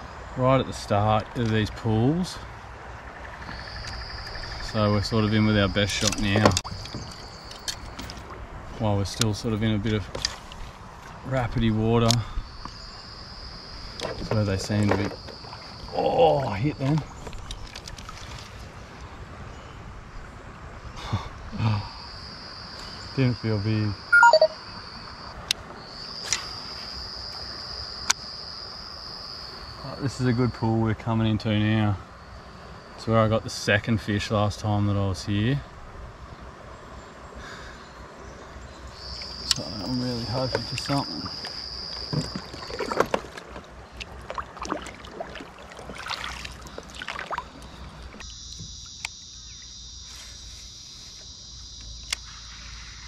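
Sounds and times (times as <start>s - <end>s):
insects droning: 0.0s - 53.0s
paddle splashing in water: 10.0s - 11.3s, 13.9s - 18.9s, 40.5s - 48.8s.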